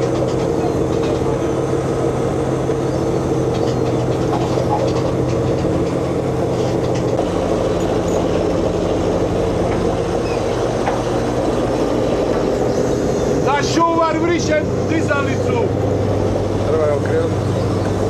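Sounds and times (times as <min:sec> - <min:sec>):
deck machinery running: 0:00.0 - 0:18.0
diesel engines droning: 0:00.0 - 0:18.0.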